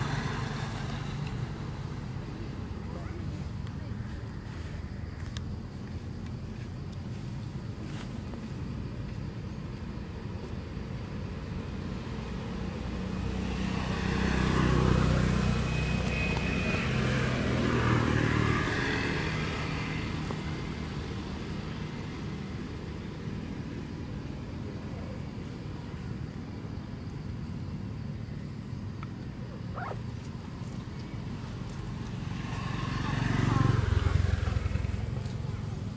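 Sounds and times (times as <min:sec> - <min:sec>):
vehicle passing by: 0:00.0 - 0:05.0, 0:11.7 - 0:24.0, 0:29.5 - 0:35.9
steady background noise: 0:00.0 - 0:35.9.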